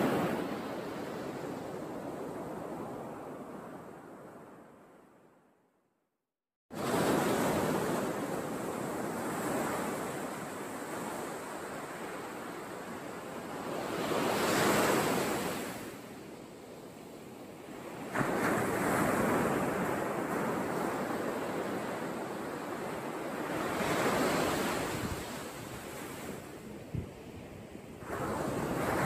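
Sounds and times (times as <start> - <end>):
surf breaking on beach: 28.0 - 29.0.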